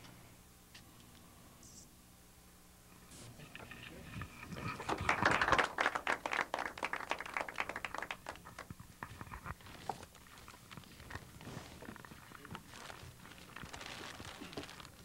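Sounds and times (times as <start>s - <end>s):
audience applauding: 4.4s - 8.8s.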